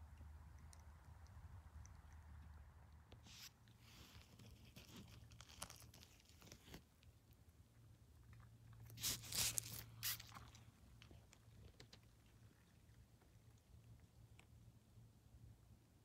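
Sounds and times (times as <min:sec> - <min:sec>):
forest litter crackling and tearing: 0:09.0 - 0:10.5.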